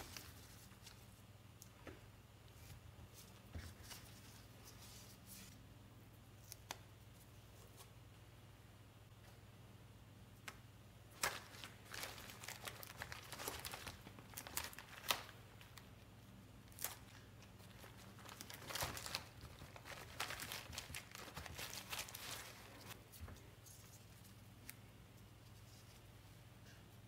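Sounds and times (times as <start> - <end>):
fabric crinkling and crackling: 16.8 - 23.0.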